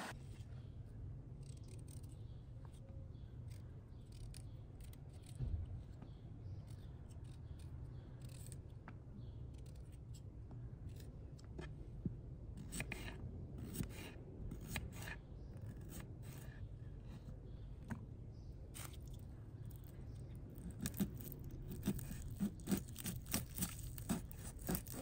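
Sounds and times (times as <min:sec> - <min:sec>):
knife cutting garlic on board: 0:12.6 - 0:16.6, 0:20.6 - 0:25.0.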